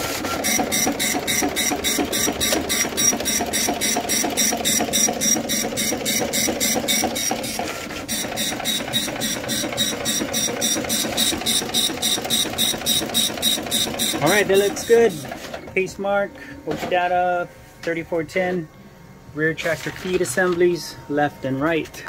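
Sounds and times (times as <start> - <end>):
dot-matrix printer head chattering: 0.4 - 15.4.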